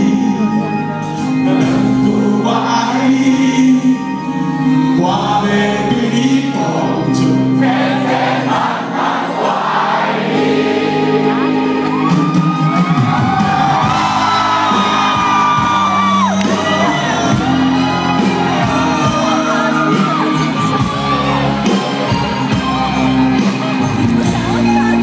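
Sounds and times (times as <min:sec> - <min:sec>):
live rock band playing: 0:00.0 - 0:25.0
crowd shouting and whooping: 0:09.3 - 0:25.0.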